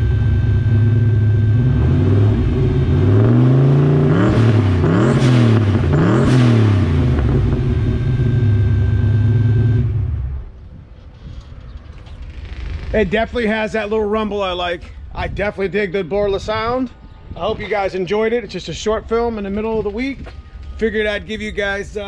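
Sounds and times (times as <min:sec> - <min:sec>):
car engine idling and revving: 0:00.0 - 0:10.7
fuel pump whine: 0:00.0 - 0:11.5.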